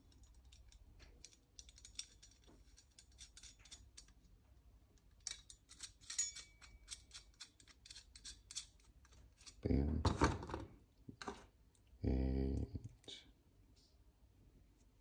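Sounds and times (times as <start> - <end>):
bolt clicking and scraping: 0.0 - 4.2, 5.0 - 9.6.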